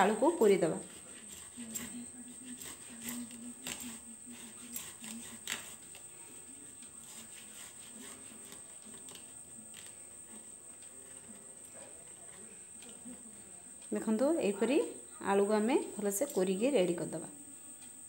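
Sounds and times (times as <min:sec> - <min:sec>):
potato rasping on metal grater: 0:00.5 - 0:05.9, 0:06.9 - 0:09.2.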